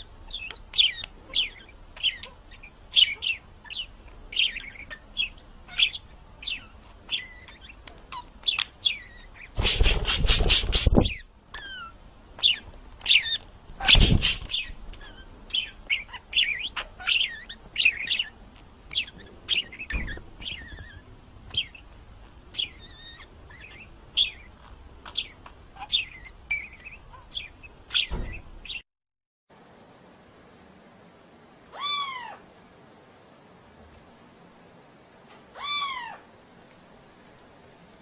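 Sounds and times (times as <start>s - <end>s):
small bird chirping: 0.0s - 28.9s.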